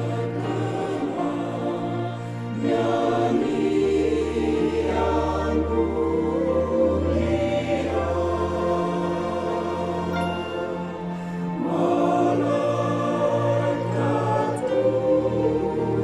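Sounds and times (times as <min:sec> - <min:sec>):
choir singing a carol: 0:00.0 - 0:16.0
instrumental ensemble: 0:04.0 - 0:16.0.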